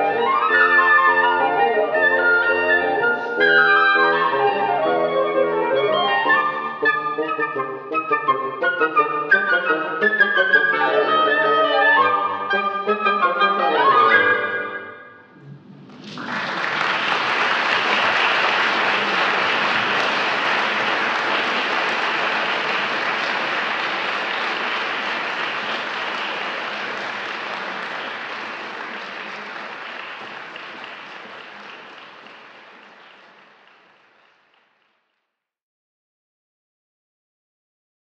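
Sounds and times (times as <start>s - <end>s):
audience applauding: 15.3s - 35.1s.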